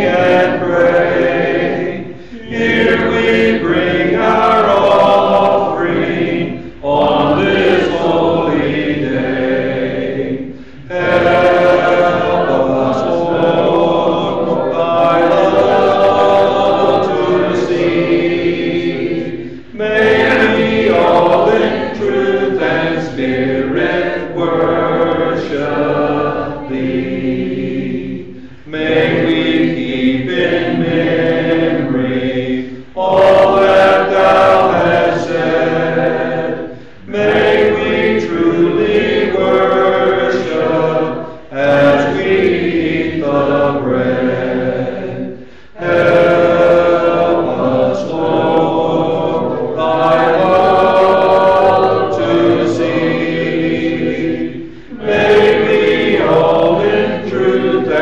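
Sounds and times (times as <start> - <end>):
congregation singing a hymn: 0.0 - 58.0
singers breathing: 2.0 - 2.5, 6.5 - 6.8, 10.4 - 10.9, 19.3 - 19.8, 28.2 - 28.7, 32.6 - 33.0, 36.6 - 37.1, 41.2 - 41.5, 45.3 - 45.8, 54.6 - 55.0.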